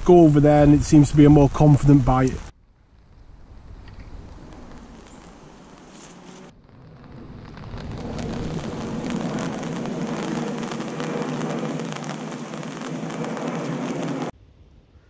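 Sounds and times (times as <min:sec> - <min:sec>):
rain pattering on an umbrella: 0:03.0 - 0:14.3.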